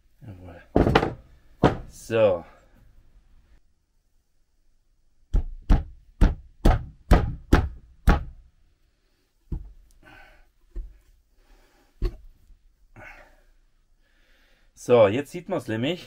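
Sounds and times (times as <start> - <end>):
hammer knocking on metal: 0.8 - 1.9.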